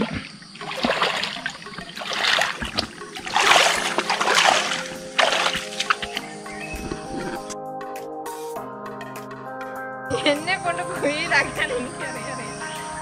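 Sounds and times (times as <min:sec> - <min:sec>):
bare feet splashing through water: 0:00.0 - 0:07.2.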